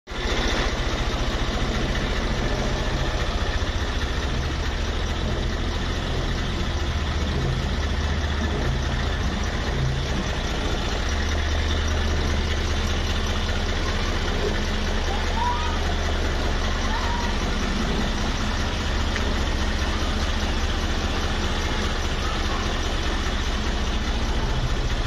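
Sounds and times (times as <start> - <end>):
diesel engine idling: 0.1 - 25.0.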